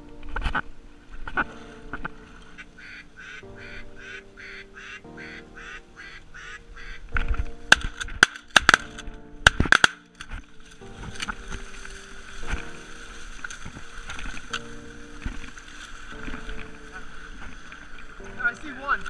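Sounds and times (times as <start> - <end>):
background music: 0.0 - 19.0
duck quacks: 2.8 - 7.0.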